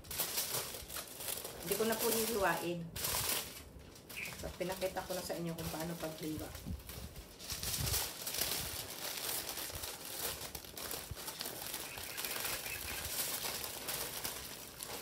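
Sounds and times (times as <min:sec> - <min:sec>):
aluminium foil crinkling: 0:00.0 - 0:15.0.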